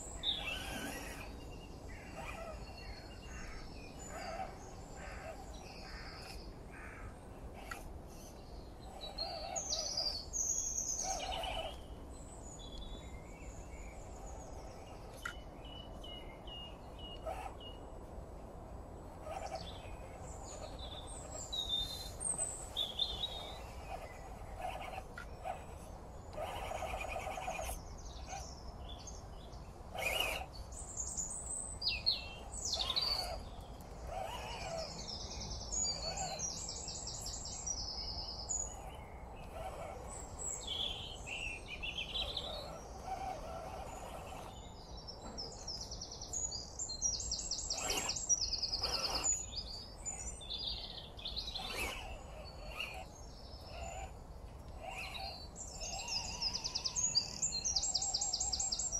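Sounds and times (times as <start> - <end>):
songbirds chirping: 0.0 - 58.9
bird trills: 29.9 - 58.9.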